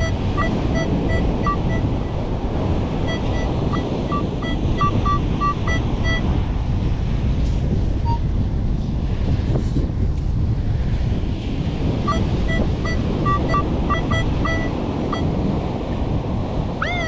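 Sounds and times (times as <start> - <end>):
metal detector beeps: 0.0 - 2.2, 3.0 - 6.3, 12.1 - 15.4
surf: 0.0 - 8.2
wind on microphone: 0.0 - 17.0.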